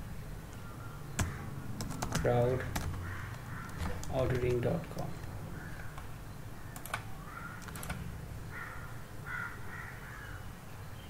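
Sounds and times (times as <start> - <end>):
crow cawing: 1.2 - 1.6, 3.0 - 4.2, 5.5 - 6.0, 6.6 - 7.6, 8.4 - 10.4
computer mouse clicks: 6.7 - 8.0.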